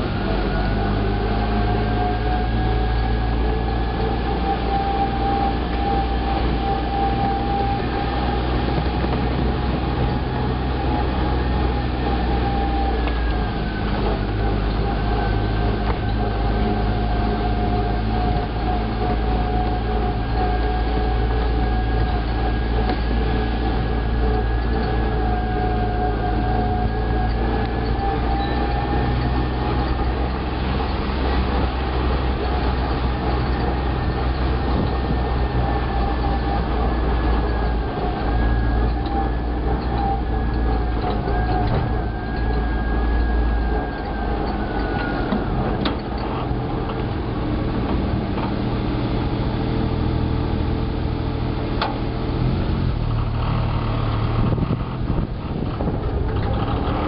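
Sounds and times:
drivetrain whine: 0.0s - 57.0s
utility vehicle engine rumble: 0.0s - 57.0s.

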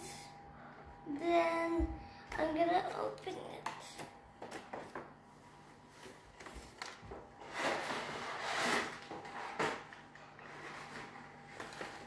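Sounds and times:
box scraping across wooden table: 7.4s - 9.8s.

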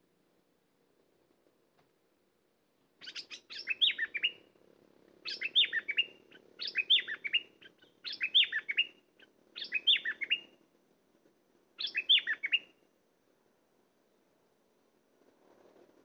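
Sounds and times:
bird singing: 3.0s - 4.5s, 5.2s - 10.5s, 11.8s - 12.8s.

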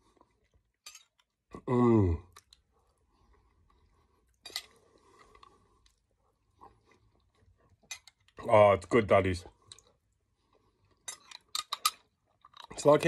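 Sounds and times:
man humming while eating: 1.5s - 2.3s.

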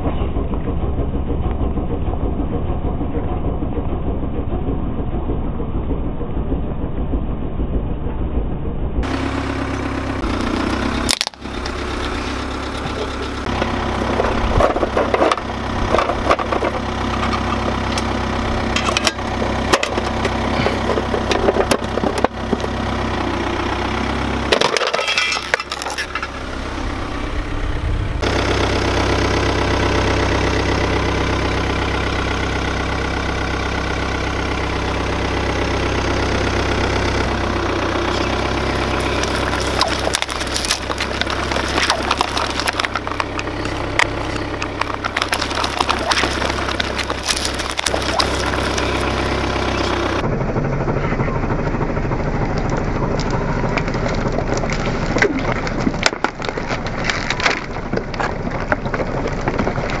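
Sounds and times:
car engine idling: 0.0s - 60.0s
tyre crunching over debris: 9.0s - 27.0s, 37.4s - 50.2s, 53.2s - 60.0s
plastic cups crushed by tyre: 10.3s - 26.6s, 38.0s - 50.2s, 52.5s - 60.0s
crackling fizzy drink: 38.2s - 50.2s.

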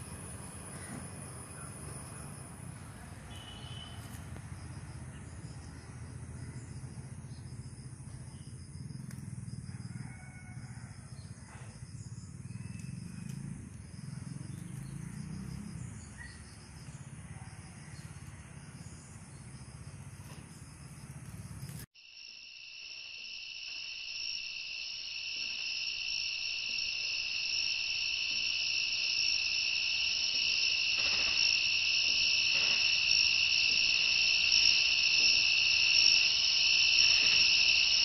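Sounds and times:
insect trills: 3.3s - 17.0s, 17.7s - 38.0s.

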